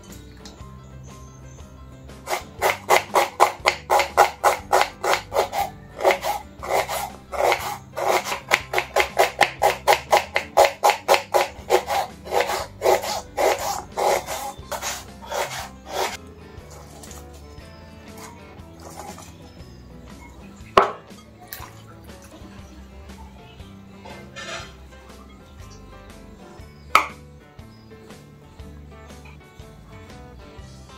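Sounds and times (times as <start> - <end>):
knife slicing onion on board: 2.3 - 17.2.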